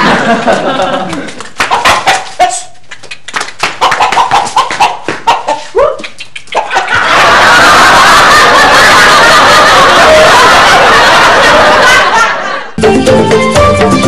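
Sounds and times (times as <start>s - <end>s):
rooster squawking: 3.8s - 7.0s.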